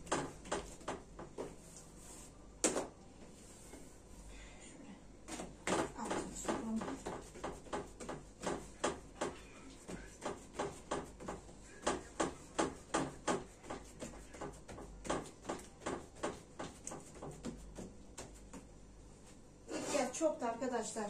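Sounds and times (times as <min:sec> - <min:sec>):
hands patting dough on wood: 0:00.0 - 0:01.9, 0:05.3 - 0:18.9.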